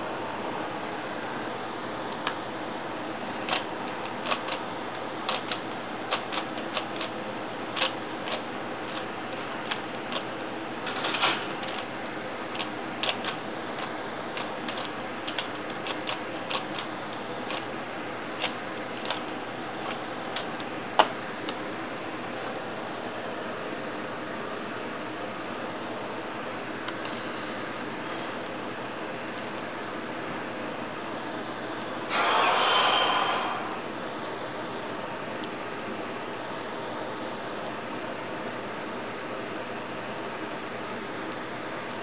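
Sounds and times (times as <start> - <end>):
steady background hiss: 0.0 - 42.0
puzzle cube layers clicking: 12.6 - 16.9.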